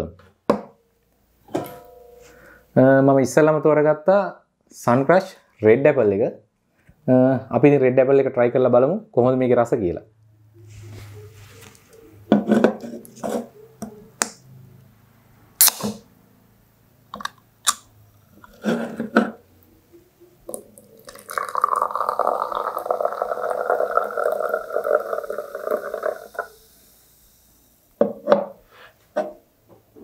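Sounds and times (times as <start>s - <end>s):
can clicks and knocks: 15.6s - 16.0s
can tab cracking open: 15.6s - 16.0s, 17.1s - 18.6s, 20.5s - 26.6s
fizzy drink pouring into glass: 20.5s - 27.5s.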